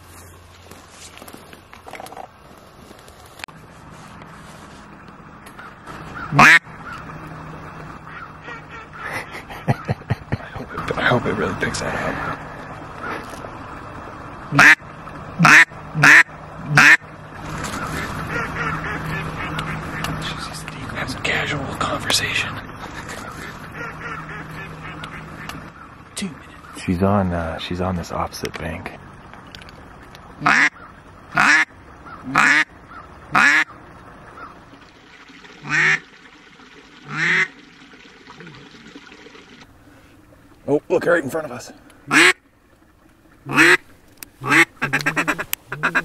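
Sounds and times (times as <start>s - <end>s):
duck quacking: 5.6s - 7.0s, 8.0s - 10.0s, 14.5s - 14.8s, 15.4s - 17.0s, 17.7s - 20.4s, 23.0s - 25.6s, 30.4s - 33.8s, 42.1s - 42.4s, 43.4s - 46.0s.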